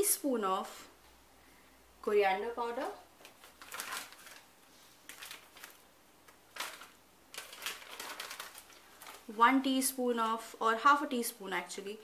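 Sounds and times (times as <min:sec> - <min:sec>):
plastic packets crinkling: 0:03.2 - 0:09.4.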